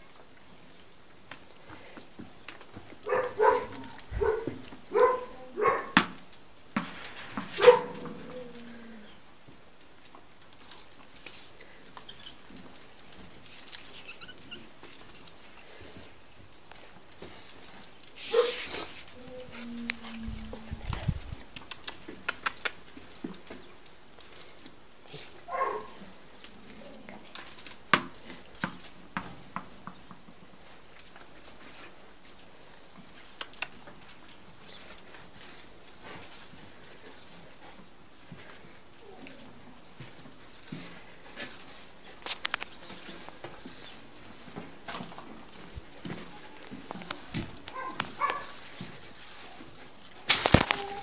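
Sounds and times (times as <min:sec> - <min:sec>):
dog whimpering: 0:19.2 - 0:21.1, 0:50.7 - 0:51.0
dog claws clicking on concrete: 0:20.9 - 0:26.6, 0:33.3 - 0:34.2
dog yelping and whining: 0:50.6 - 0:51.0.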